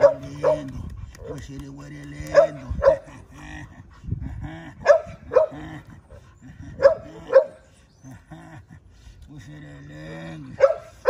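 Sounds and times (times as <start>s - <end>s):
dog barking: 0.0s - 1.4s, 2.3s - 3.0s, 4.8s - 5.6s, 6.8s - 7.6s, 10.6s - 11.0s.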